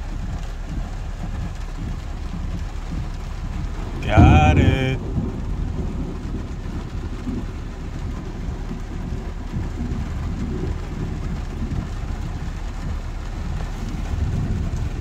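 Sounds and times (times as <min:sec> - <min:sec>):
steady rain: 0:00.0 - 0:15.0
traffic on wet road: 0:00.0 - 0:15.0
rumble of thunder: 0:05.0 - 0:15.0.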